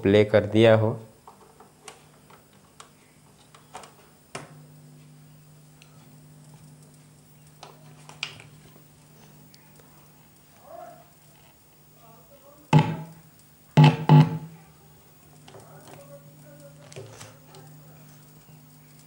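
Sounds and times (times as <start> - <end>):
low electrical hum: 0.0 - 19.0
electronics clicking and tapping: 12.7 - 14.7.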